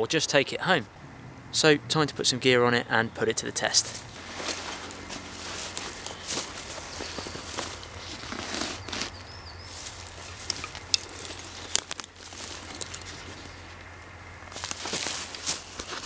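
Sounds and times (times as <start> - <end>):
fabric and straps rustling: 3.8 - 13.9, 14.5 - 16.0.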